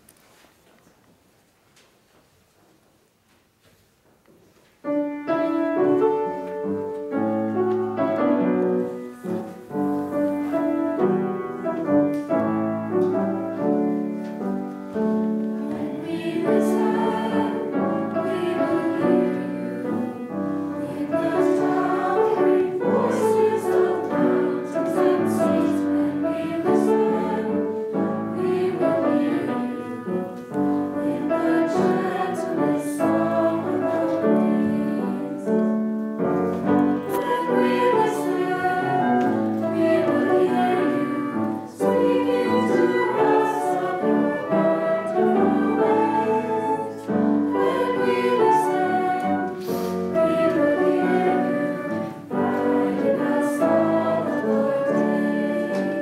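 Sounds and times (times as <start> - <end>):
piano accompaniment: 4.8 - 56.0
youth choir singing: 15.6 - 35.7, 36.7 - 56.0.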